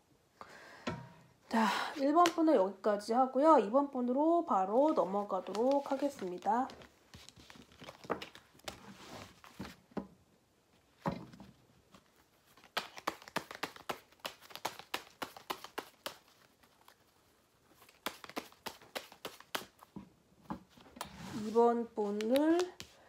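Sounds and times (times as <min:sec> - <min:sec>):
cards clicking and slapping: 0:05.4 - 0:08.8, 0:12.4 - 0:17.1, 0:17.7 - 0:19.9, 0:22.1 - 0:23.0.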